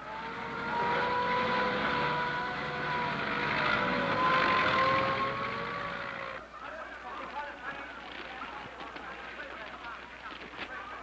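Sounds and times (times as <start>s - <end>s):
fire engine siren wailing: 0.0s - 6.4s
truck engine: 0.0s - 6.5s.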